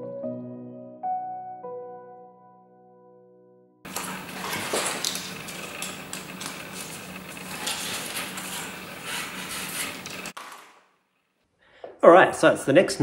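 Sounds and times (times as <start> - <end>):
steady low hum: 3.9 - 10.4
small objects clicking on desk: 3.9 - 10.8.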